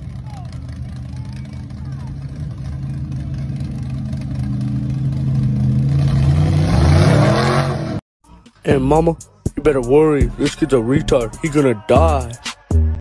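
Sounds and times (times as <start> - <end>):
monster truck engine revving: 0.0 - 8.0.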